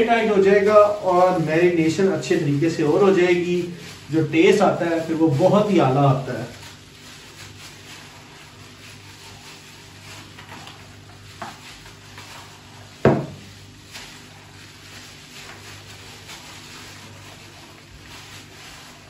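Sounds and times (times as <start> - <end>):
gloved hands kneading meat: 0.0 - 19.0
sharp thump: 13.1 - 13.4.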